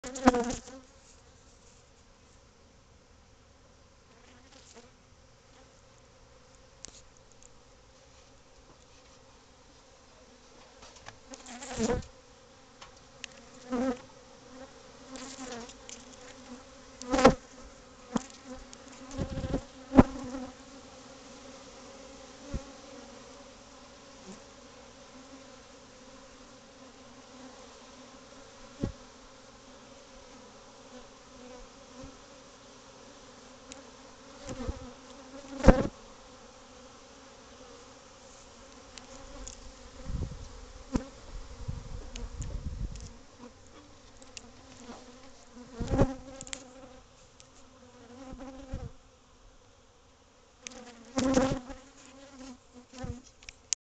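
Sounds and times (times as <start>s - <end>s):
honey bees buzzing: 0.0s - 0.8s, 9.3s - 53.3s.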